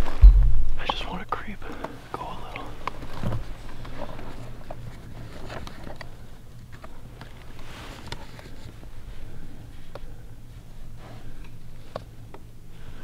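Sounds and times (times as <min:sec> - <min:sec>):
wind rumble on microphone: 0:00.0 - 0:00.9
soft rush of noise: 0:00.0 - 0:13.0
clothing and gear rustling: 0:02.7 - 0:12.0.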